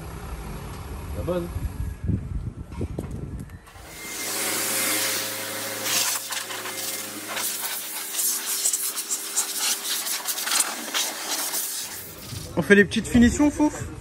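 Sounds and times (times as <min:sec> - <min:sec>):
loud rush of air: 0:03.6 - 0:12.6
air blower motor hum: 0:03.7 - 0:12.6.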